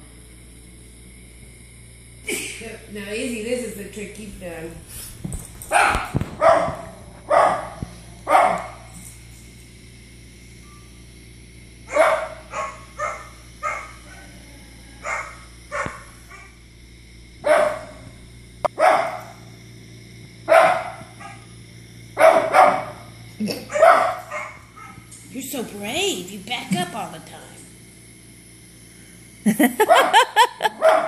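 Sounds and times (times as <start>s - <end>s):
small dog barking: 5.7s - 8.9s, 11.9s - 14.4s, 15.0s - 16.5s, 17.4s - 18.0s, 18.8s - 19.3s, 20.5s - 21.5s, 22.2s - 23.0s, 23.7s - 25.0s, 29.8s - 31.0s.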